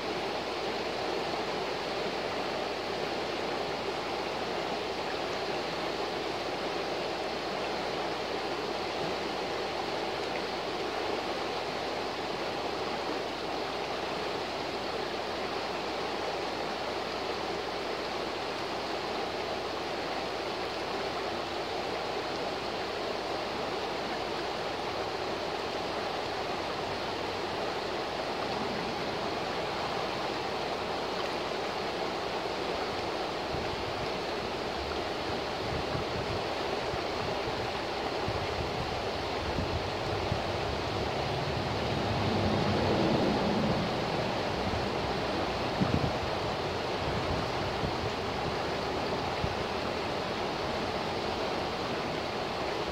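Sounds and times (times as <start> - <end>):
river rushing over rocks: 0.0 - 52.9
low rumbling: 28.0 - 30.6.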